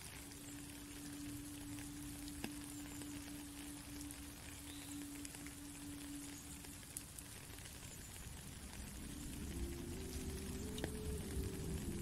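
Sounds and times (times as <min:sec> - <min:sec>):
rain falling on a puddle: 0:00.0 - 0:12.0
flute holding low note: 0:01.2 - 0:06.9, 0:09.0 - 0:12.0.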